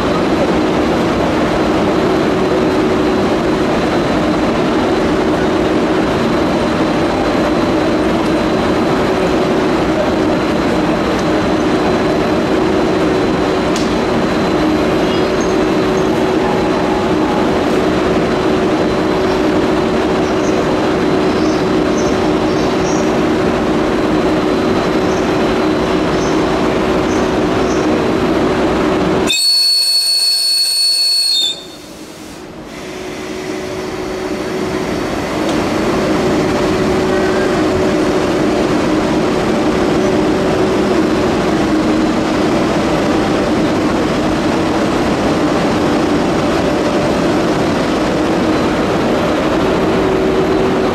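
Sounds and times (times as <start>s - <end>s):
train rail noise: 0.0s - 50.9s
high-pitched locomotive whistle: 29.2s - 34.8s.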